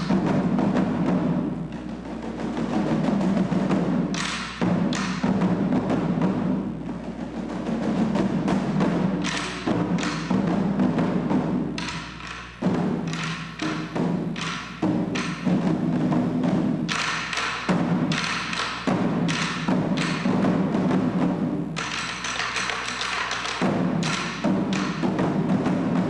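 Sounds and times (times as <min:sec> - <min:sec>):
small drums rolling: 0:00.0 - 0:26.0.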